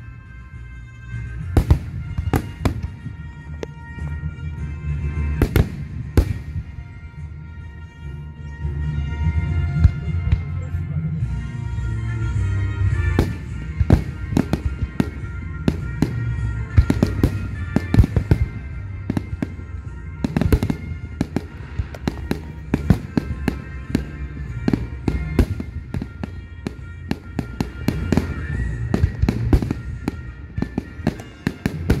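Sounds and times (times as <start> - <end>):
fireworks bangs and crackles: 1.3 - 7.2, 12.8 - 32.0
loud fireworks booms: 1.5 - 3.2, 5.4 - 6.9, 13.0 - 32.0.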